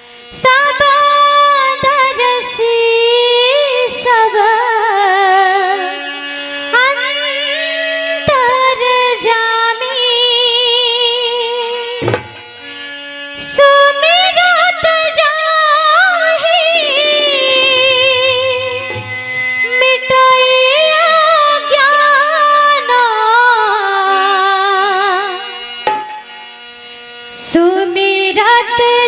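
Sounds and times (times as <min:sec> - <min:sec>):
ornamented melody with vibrato: 0:00.0 - 0:29.0
hand drum strokes: 0:12.0 - 0:12.6, 0:16.7 - 0:20.9, 0:25.8 - 0:26.4.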